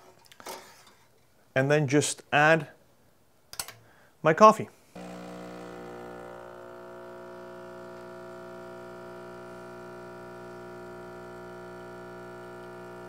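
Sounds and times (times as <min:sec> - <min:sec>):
espresso machine pump buzzing: 0:05.0 - 0:13.0.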